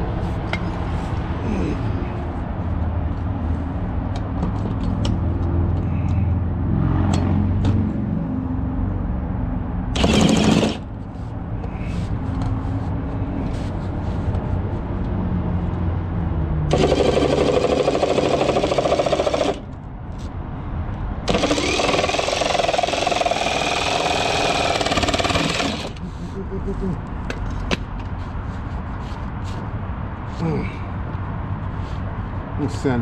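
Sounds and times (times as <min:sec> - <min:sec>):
reciprocating saw cutting plastic: 0:10.0 - 0:10.8, 0:16.7 - 0:19.7, 0:21.3 - 0:26.1.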